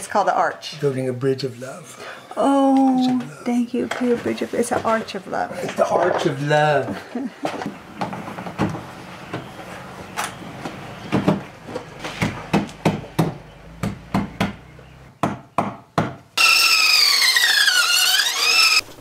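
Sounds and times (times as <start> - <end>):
band saw cutting wood: 16.4 - 19.0.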